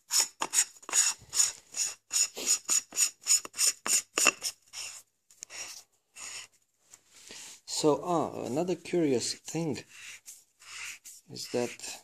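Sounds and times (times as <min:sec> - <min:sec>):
screw threads rasping: 0:00.0 - 0:06.5.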